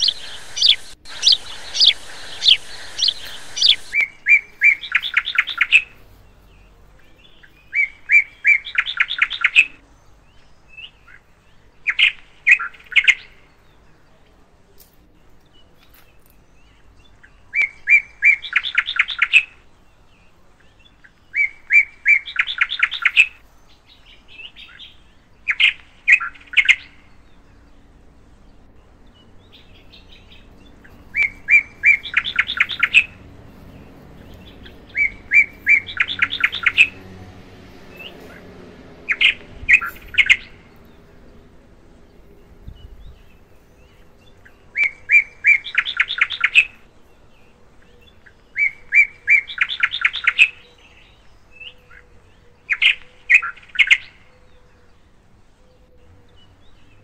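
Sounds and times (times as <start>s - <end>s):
songbird singing with trill: 0.0s - 57.0s.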